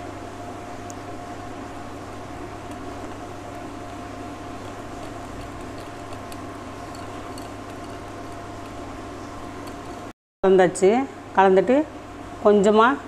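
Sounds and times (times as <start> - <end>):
mechanical hum with tones: 0.0 - 13.0
whisk clicking against glass bowl: 2.6 - 10.1.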